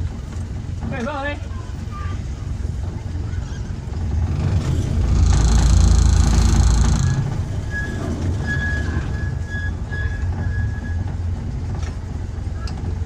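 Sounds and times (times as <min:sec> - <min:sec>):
miniature train rumbling: 0:00.0 - 0:13.0
wheels squealing on track: 0:04.0 - 0:11.4.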